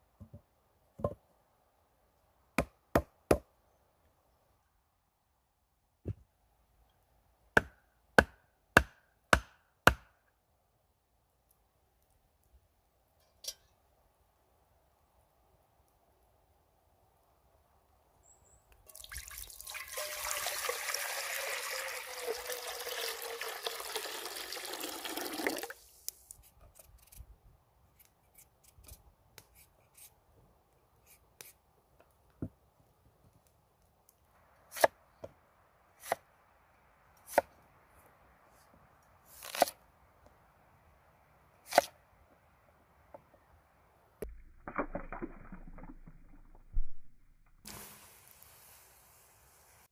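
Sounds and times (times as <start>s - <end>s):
liquid pouring into pot: 18.9s - 25.8s.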